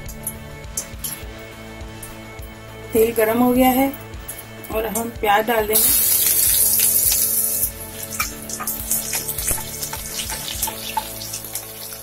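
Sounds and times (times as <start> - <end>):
onions sizzling in hot oil: 5.8 - 12.0
steel spoon stirring: 6.2 - 11.8
pops and clicks: 8.1 - 11.2.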